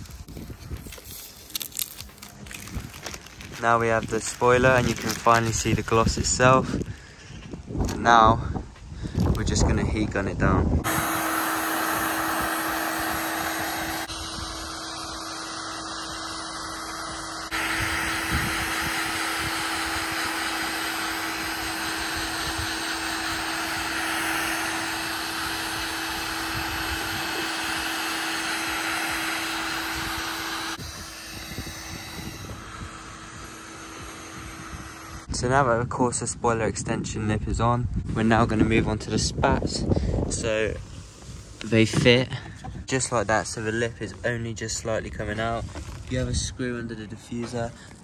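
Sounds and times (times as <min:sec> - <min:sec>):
heat gun fan humming: 0:00.0 - 0:08.0, 0:09.0 - 0:35.9.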